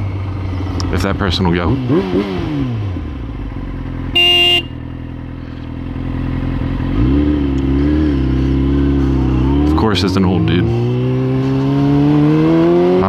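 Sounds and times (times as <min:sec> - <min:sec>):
motorcycle engine idling and revving: 0:00.0 - 0:13.0
short horn beep: 0:04.2 - 0:04.8.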